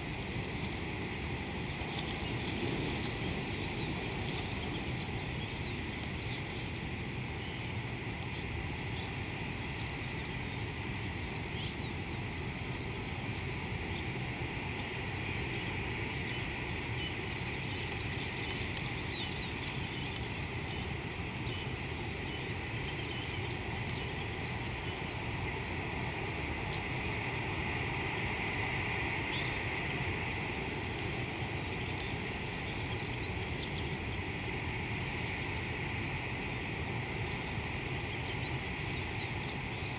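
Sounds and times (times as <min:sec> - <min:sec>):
insect chorus: 0:00.0 - 0:39.9.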